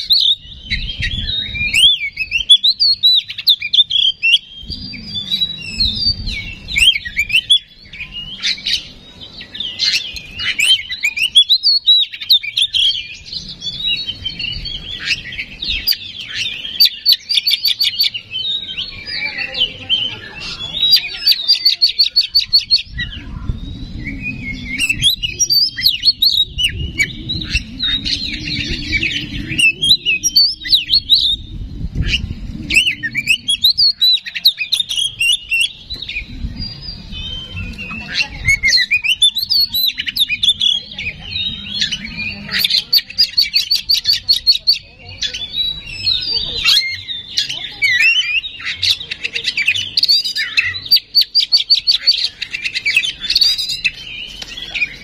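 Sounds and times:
bird singing whistles and chatter: 0.0s - 55.0s
low rumble: 22.3s - 42.9s.

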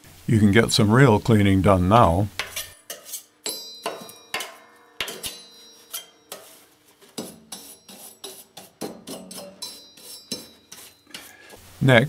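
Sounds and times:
metal scraping and clinking: 2.4s - 11.6s.

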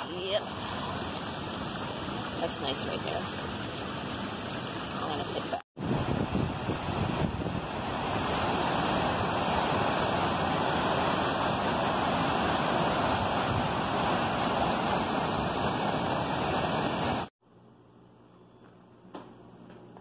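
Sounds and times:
waterfall rushing over boulders: 6.6s - 17.3s.

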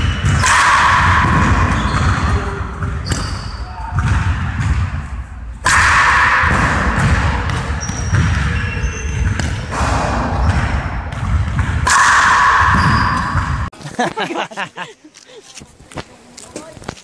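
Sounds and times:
ball bouncing on wooden floor: 0.0s - 5.0s, 6.4s - 13.7s.

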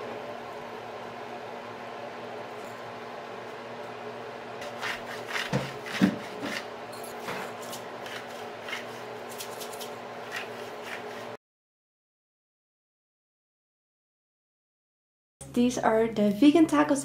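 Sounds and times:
pepper grinder grinding: 4.6s - 11.3s.

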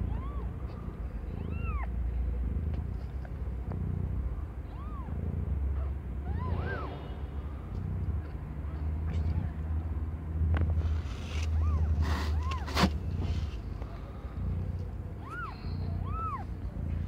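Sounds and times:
kittens mewing: 0.0s - 3.5s, 4.1s - 8.0s, 11.4s - 17.0s.

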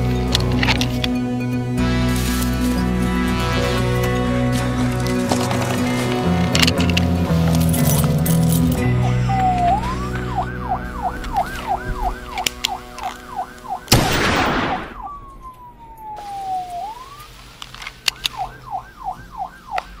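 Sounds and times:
police siren: 1.7s - 7.5s, 8.4s - 20.0s
loud blast: 13.9s - 17.1s.

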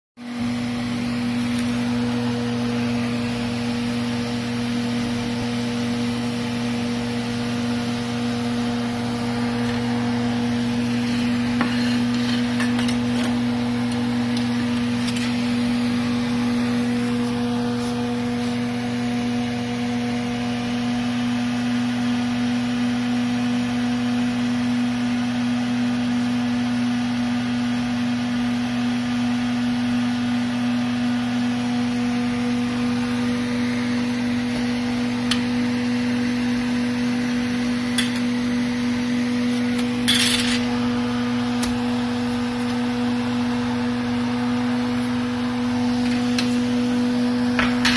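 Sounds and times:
electric hum: 0.3s - 20.9s.

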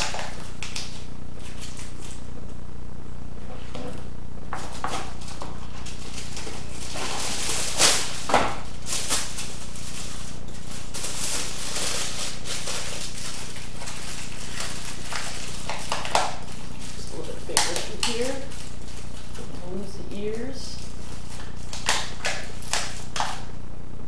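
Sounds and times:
aluminium foil crinkling: 0.0s - 2.3s, 3.8s - 23.5s.

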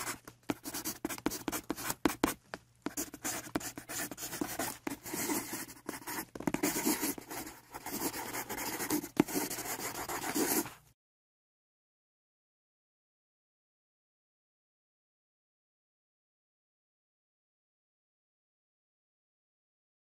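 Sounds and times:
marker scratching on paper: 0.0s - 10.8s.

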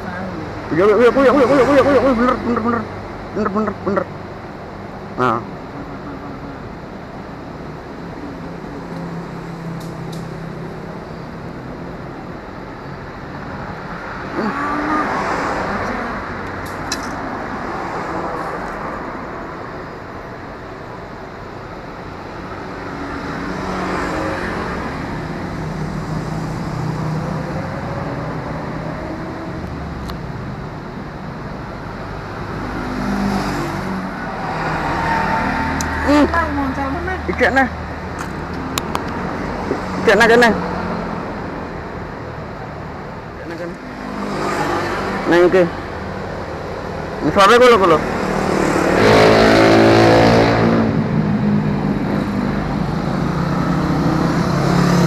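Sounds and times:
road traffic hum: 0.0s - 55.0s
vehicles passing close by: 0.0s - 55.0s.

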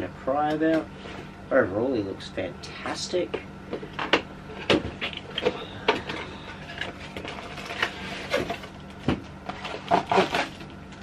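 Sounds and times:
cardboard rustling and scraping: 4.6s - 11.0s.

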